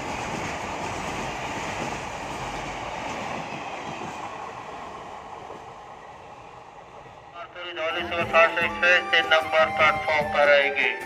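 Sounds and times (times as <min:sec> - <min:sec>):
freight train wheels rolling on rail: 0:00.0 - 0:08.8.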